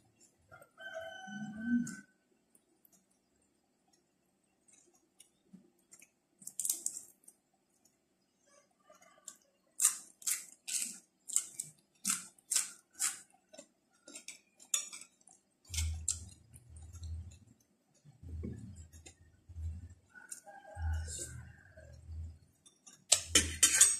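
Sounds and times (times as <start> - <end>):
crunching raw vegetables: 9.3 - 17.6
low hum: 15.7 - 20.1.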